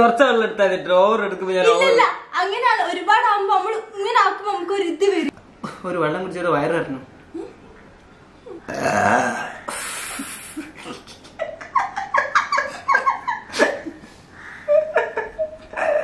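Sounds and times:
breathy hissing bursts: 9.7s - 10.8s
man laughing: 14.7s - 16.0s.

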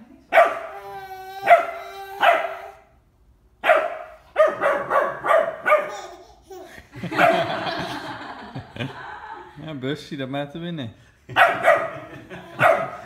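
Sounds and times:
puppy barking: 0.3s - 0.8s, 1.4s - 2.8s, 3.6s - 6.2s, 7.1s - 7.5s, 11.4s - 13.0s.

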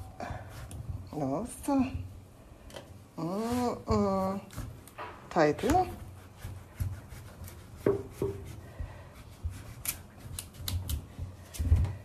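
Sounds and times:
knife scraping pumpkin rind: 5.6s - 11.0s.

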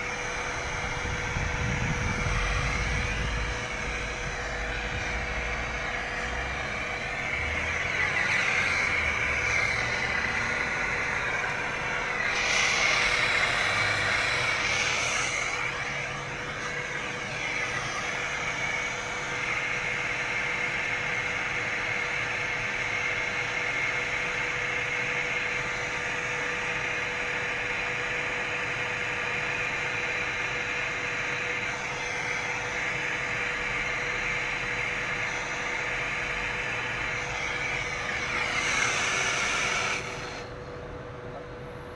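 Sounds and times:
gas torch flame hissing: 0.0s - 40.6s
steady hum: 0.0s - 41.9s.

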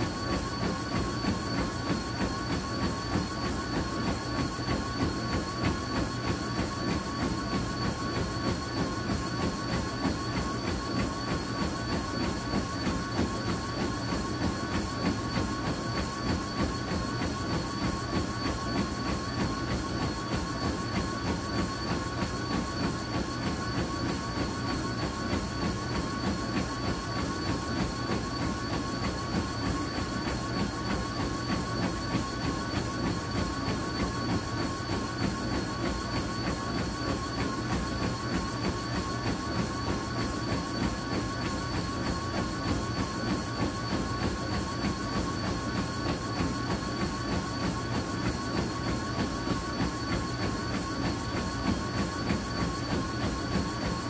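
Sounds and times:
footfalls on treadmill belt: 0.0s - 54.0s
treadmill motor whine: 0.0s - 54.0s.

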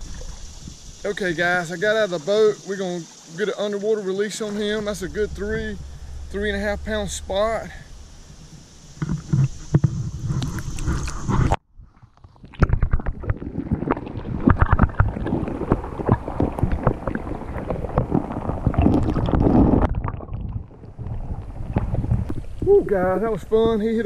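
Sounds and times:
underwater sloshing and gurgling: 0.0s - 24.0s
sharp underwater clicks and knocks: 4.6s - 22.7s.

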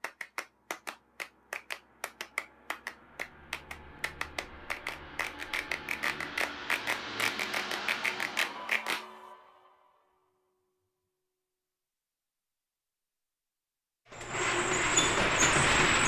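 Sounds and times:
sharp clicks: 0.0s - 9.0s.

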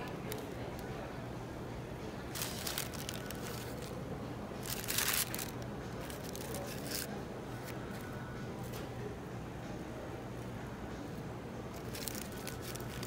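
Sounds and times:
paper wrapper crinkling: 2.3s - 4.0s, 4.6s - 7.8s, 11.7s - 13.0s.

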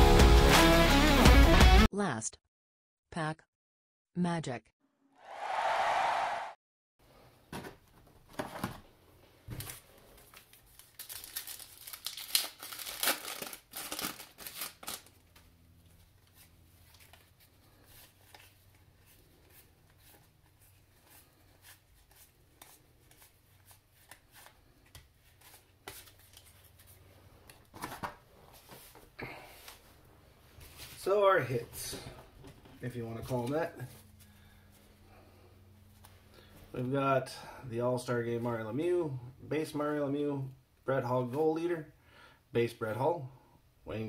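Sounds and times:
plastic wrapper crinkling: 10.1s - 15.4s.

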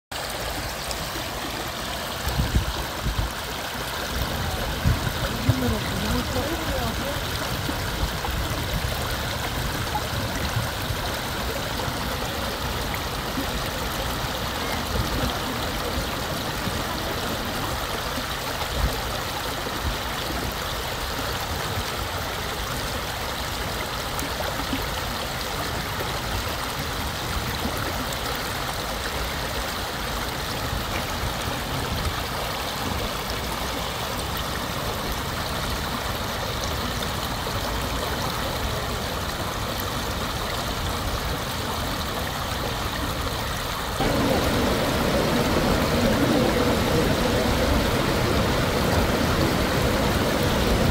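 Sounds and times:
mountain stream rushing: 0.1s - 50.9s.

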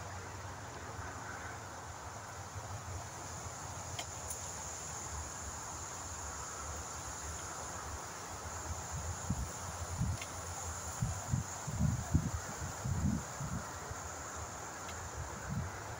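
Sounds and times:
steady high hiss: 0.0s - 15.9s
wind buffeting microphone: 11.0s - 14.0s
faint clicks: 14.8s - 15.0s.

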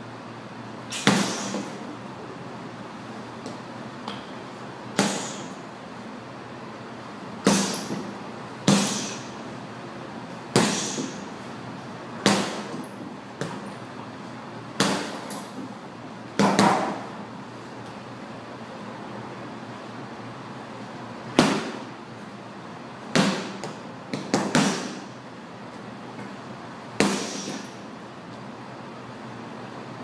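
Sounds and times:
punches thudding on heavy bag: 0.9s - 1.8s, 4.9s - 5.5s, 7.4s - 9.3s, 10.5s - 11.3s, 12.2s - 13.6s, 14.8s - 15.5s, 16.4s - 17.1s, 21.3s - 21.9s, 23.1s - 25.1s, 27.0s - 27.8s.

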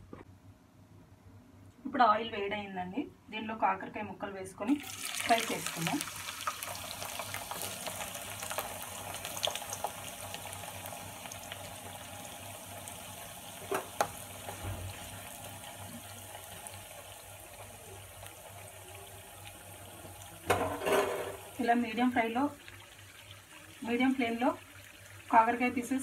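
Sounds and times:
vegetables sizzling in hot oil: 4.7s - 26.0s.

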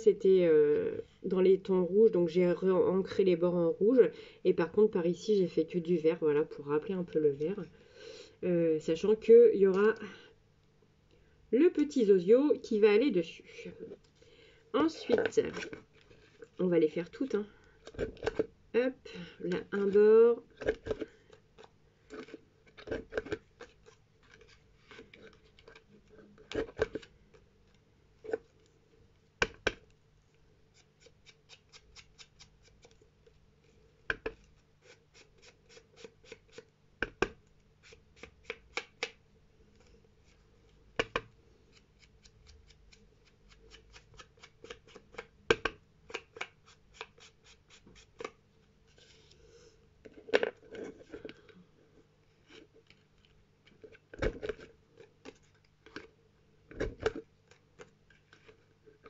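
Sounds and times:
tools clicking and tapping cards: 38.2s - 39.2s.

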